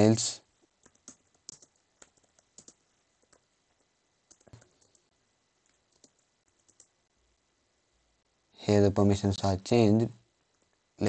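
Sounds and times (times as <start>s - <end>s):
keyboard keystroke clicks: 0.8s - 3.4s, 4.3s - 5.0s, 5.7s - 6.9s.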